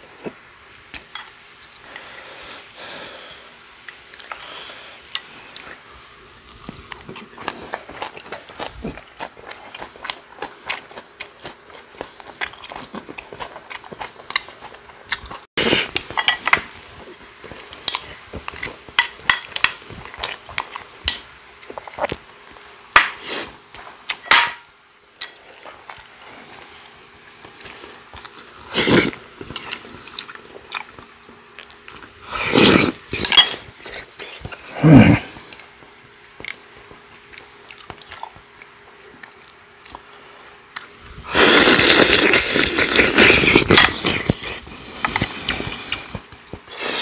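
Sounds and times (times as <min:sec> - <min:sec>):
chewing: 0:03.8 - 0:24.2, 0:25.0 - 0:47.0.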